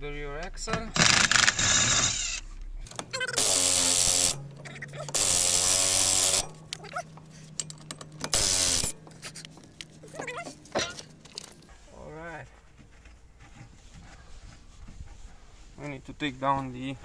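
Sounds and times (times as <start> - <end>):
impact wrench hammering: 0.7 - 9.3.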